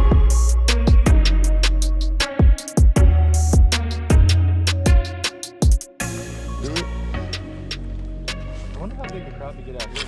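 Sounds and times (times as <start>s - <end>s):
deep bass notes: 0.0s - 2.3s, 3.0s - 5.1s.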